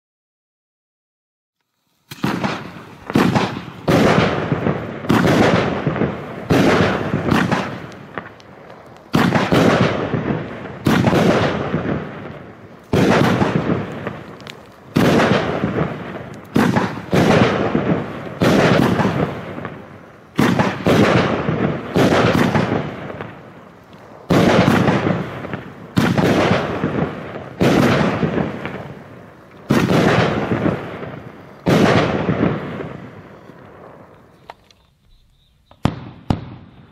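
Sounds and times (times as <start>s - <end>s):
fireworks bangs: 1.8s - 36.9s.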